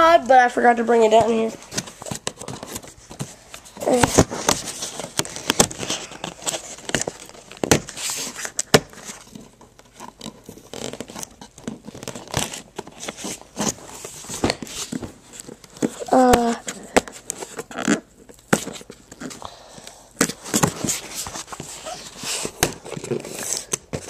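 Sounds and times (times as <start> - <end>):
cardboard clicks and knocks: 1.2 - 19.4, 20.2 - 24.0
packaging crinkling and tearing: 1.6 - 19.5.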